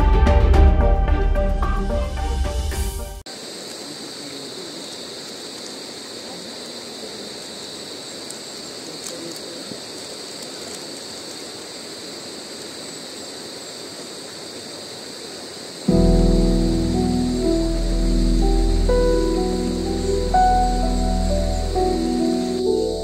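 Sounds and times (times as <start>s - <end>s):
faint clicks: 8.2s - 11.4s
high-pitched drone: 15.9s - 23.0s.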